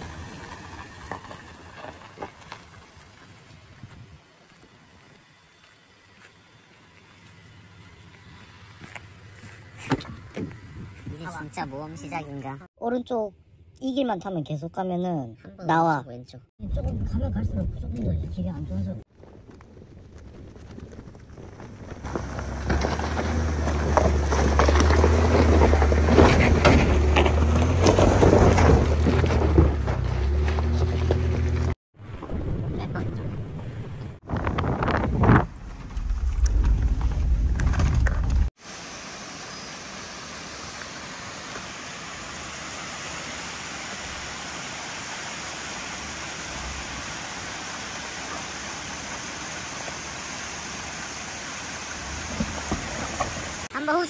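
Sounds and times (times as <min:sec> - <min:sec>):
tyres crunching on gravel: 0:00.0 - 0:11.8, 0:19.1 - 0:31.8, 0:52.0 - 0:54.0
faint truck engine running: 0:00.0 - 0:12.6
creek water rushing: 0:38.6 - 0:53.7.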